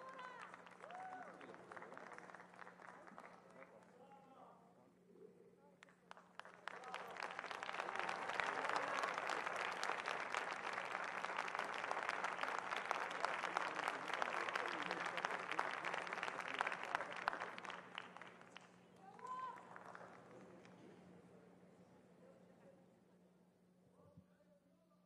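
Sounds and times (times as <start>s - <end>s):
large audience applauding: 0.0s - 3.8s, 6.1s - 20.6s.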